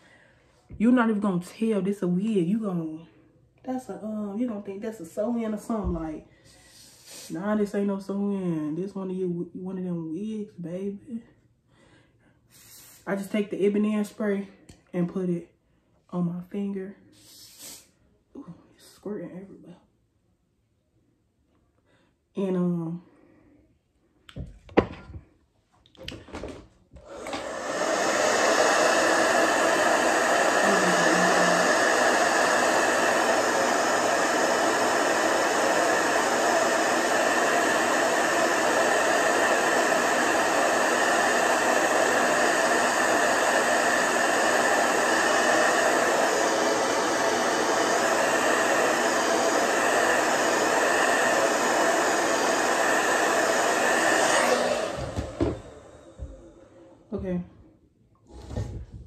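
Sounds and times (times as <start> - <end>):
hair dryer running: 26.0 - 57.3.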